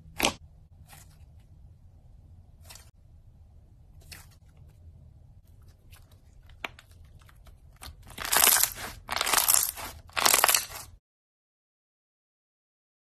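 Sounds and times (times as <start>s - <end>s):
crunchy slime crackles: 5.8s - 11.0s.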